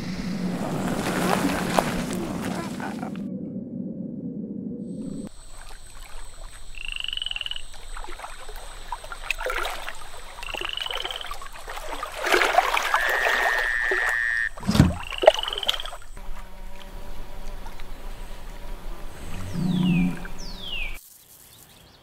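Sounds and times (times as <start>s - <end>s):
steady high whine: 0.0s - 2.5s
low thump with splash: 0.0s - 3.0s, 14.6s - 16.5s
water sloshing and splashing: 0.0s - 3.2s, 5.0s - 21.0s
frogs croaking: 4.8s - 21.0s.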